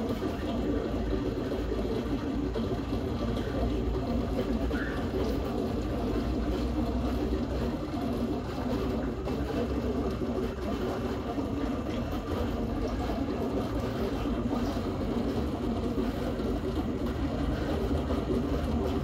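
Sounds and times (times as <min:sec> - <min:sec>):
aquarium pump humming: 0:00.0 - 0:19.0.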